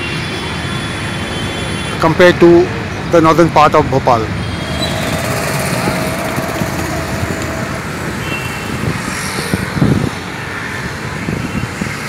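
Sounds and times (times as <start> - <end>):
road traffic passing: 4.1 - 9.6.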